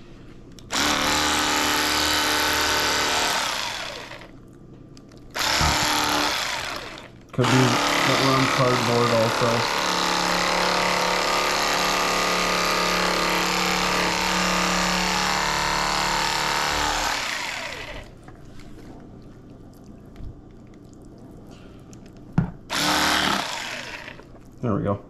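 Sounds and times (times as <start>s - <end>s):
electric knife motor buzzing: 0.7s - 4.3s, 5.4s - 18.2s, 22.7s - 24.3s.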